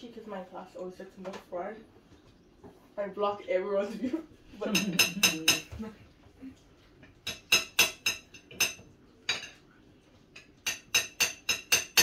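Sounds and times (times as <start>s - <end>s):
cutlery clinking against plate: 4.7s - 5.8s, 7.1s - 9.6s, 10.4s - 12.0s.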